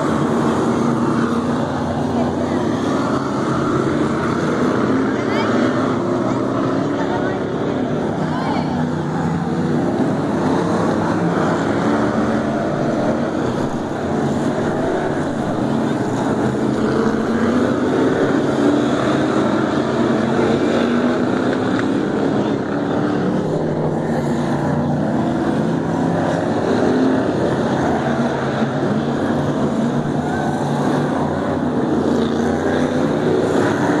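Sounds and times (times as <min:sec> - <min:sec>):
race car engines roaring: 0:00.0 - 0:34.0.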